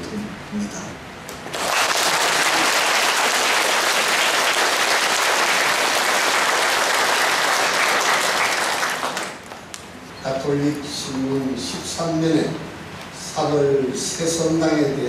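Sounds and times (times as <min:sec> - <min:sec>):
congregation applauding: 0:01.4 - 0:09.7.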